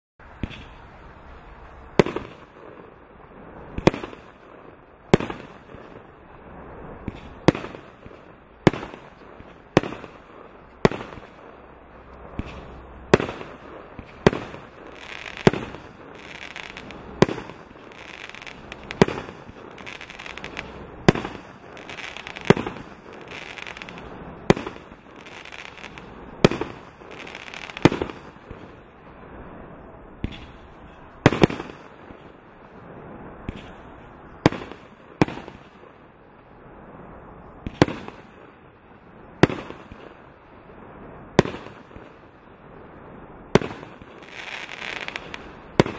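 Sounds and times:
firework shots banging and bursting: 0.2 - 0.9, 1.9 - 29.0, 30.2 - 32.4, 33.4 - 36.0, 37.6 - 38.6, 39.4 - 40.2, 43.5 - 45.9.

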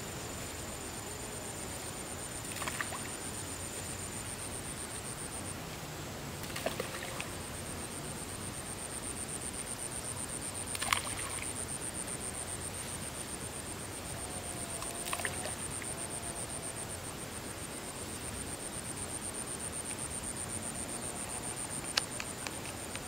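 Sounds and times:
fish splashing in water: 6.4 - 7.3, 10.7 - 11.5, 14.8 - 15.6.

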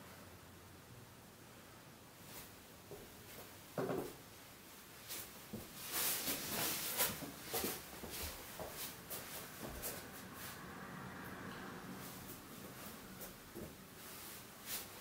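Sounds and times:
feet scuffing on foam mats: 5.1 - 10.1.

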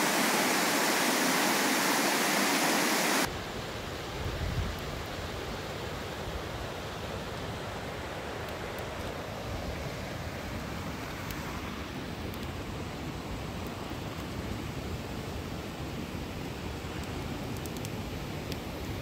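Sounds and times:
river water rushing: 0.0 - 3.3.

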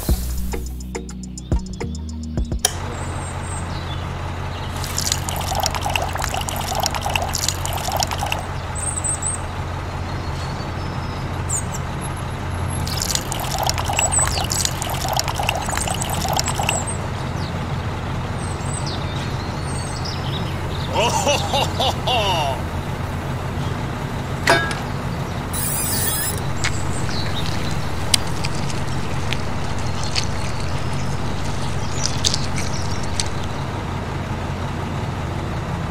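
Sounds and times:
water splashing into cement mixer: 4.8 - 8.5, 12.8 - 16.9, 25.6 - 33.6.

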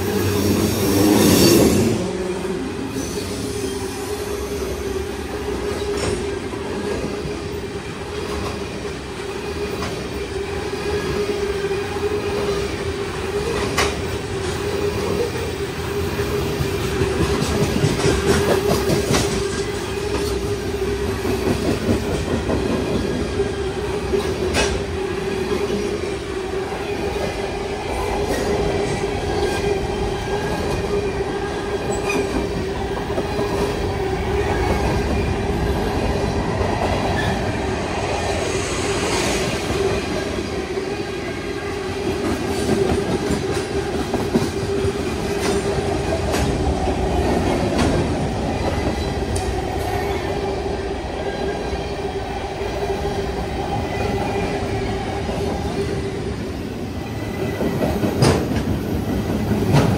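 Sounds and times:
train wheels rumbling on rail: 0.0 - 59.9.

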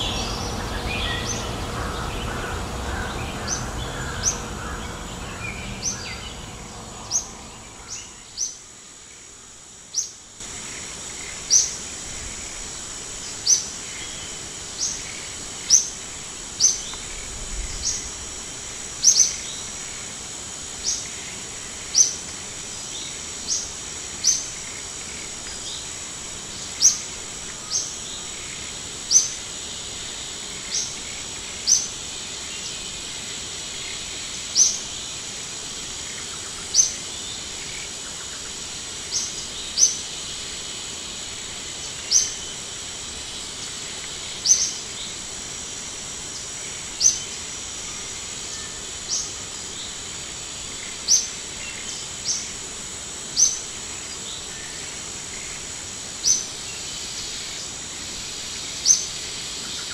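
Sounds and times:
high falling bird chirp: 0.0 - 8.6
high-pitched drone and hiss: 0.0 - 59.9.

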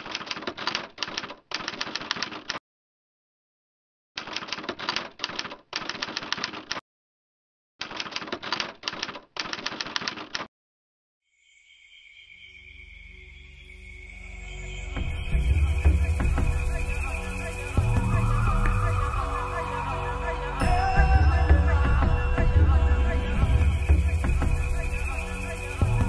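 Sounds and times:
typewriter key clatter: 0.0 - 2.6, 4.2 - 6.8, 7.8 - 10.5.

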